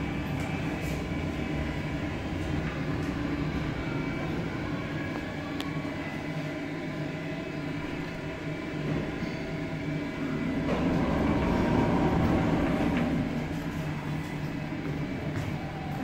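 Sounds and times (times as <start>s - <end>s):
elevator mechanical hum: 0.0s - 16.0s
elevator doors sliding open: 8.0s - 15.3s.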